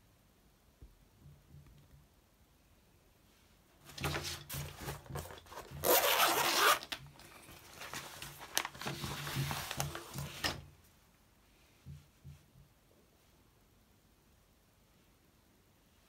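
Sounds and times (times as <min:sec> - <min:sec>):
fabric cover rustling: 0:03.7 - 0:10.7
zipper pulled open: 0:05.2 - 0:07.0.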